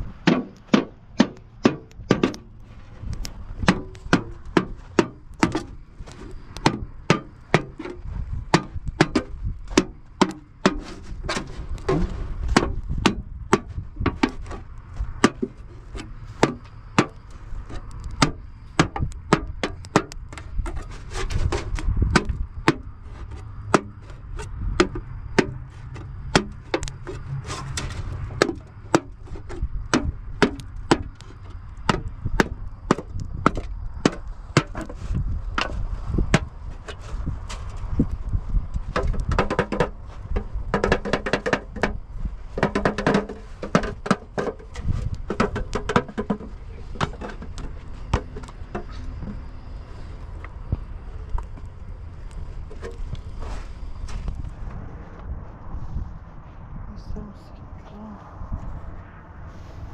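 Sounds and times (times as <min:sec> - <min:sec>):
low rumble: 0:46.5 - 0:59.9.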